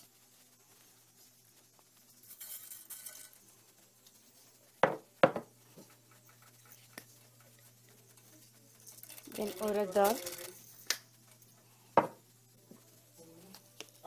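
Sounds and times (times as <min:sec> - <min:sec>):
seeds sizzling in hot oil: 0:00.0 - 0:14.0
sharp knocks on pan: 0:04.8 - 0:05.5, 0:12.0 - 0:12.2.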